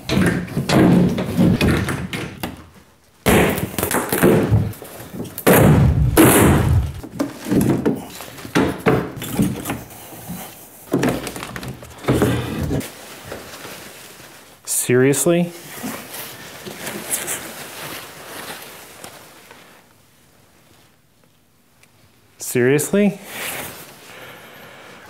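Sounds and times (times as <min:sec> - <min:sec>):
wooden panels knocking and scraping: 0:00.0 - 0:02.7, 0:03.3 - 0:09.9, 0:10.9 - 0:12.8.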